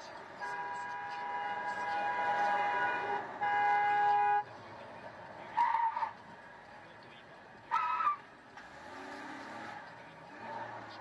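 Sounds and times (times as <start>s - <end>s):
car horn blasts: 0.4s - 4.4s.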